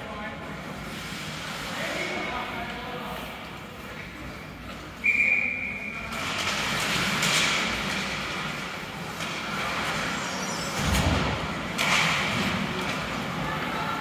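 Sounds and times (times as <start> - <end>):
referee's whistle: 5.0 - 6.0.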